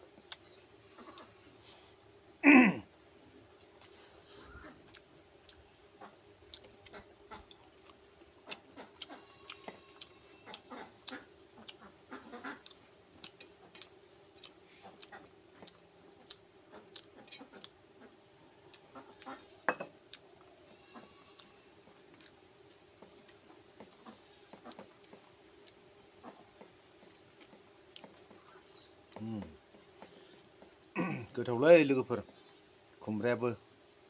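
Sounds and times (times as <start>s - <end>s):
faint steady hum: 0.0s - 34.0s
person chewing and lip-smacking: 0.2s - 0.5s, 4.9s - 5.7s, 6.5s - 11.8s, 12.6s - 17.8s, 18.7s - 19.3s, 22.1s - 22.4s.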